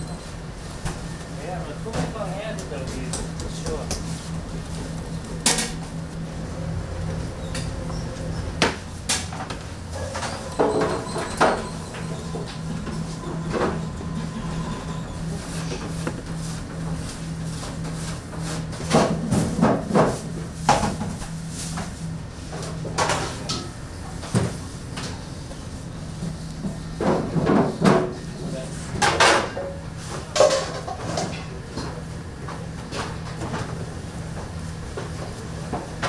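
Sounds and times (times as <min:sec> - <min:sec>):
low machine hum: 0:00.0 - 0:36.0.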